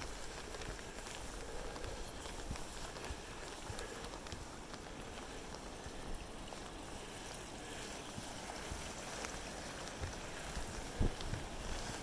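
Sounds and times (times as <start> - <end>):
stream water rushing: 4.7 - 12.0.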